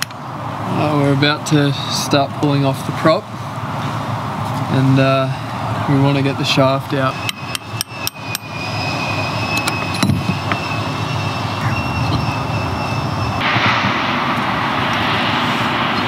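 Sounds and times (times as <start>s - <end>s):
faint high whistling tones: 5.9s - 13.7s
steady rumbling drone: 8.6s - 16.0s.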